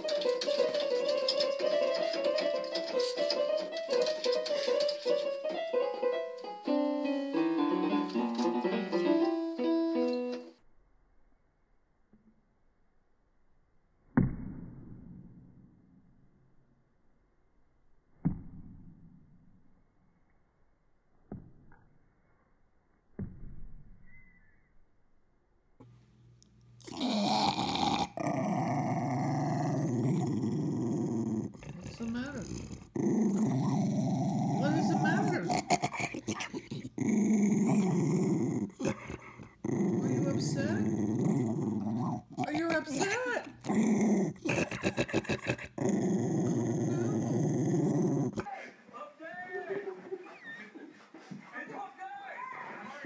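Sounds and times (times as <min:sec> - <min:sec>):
electronic keyboard piano notes: 0:00.0 - 0:10.5
small dog growling: 0:26.8 - 0:48.5.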